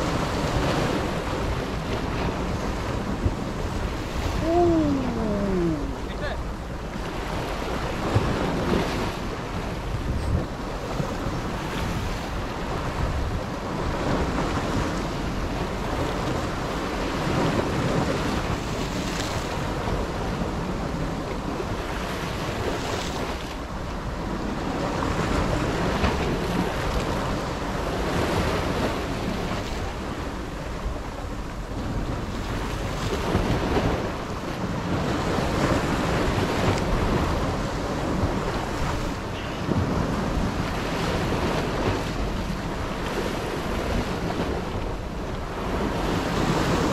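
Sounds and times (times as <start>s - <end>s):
sea waves breaking on rocks: 0.0s - 46.9s.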